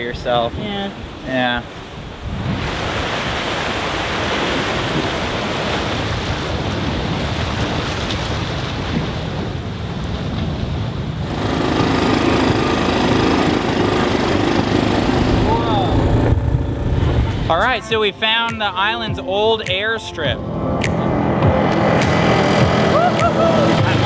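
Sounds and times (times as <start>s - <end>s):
waves on rocky shore: 0.0s - 16.3s
wind: 0.0s - 24.0s
quad bike engine running: 11.3s - 17.5s, 21.4s - 24.0s.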